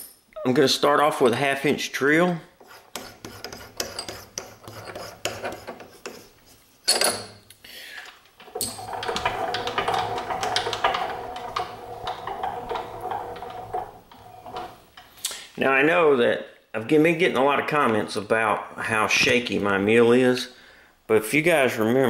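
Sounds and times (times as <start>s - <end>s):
camera rubbing and knocking: 2.6s - 6.6s.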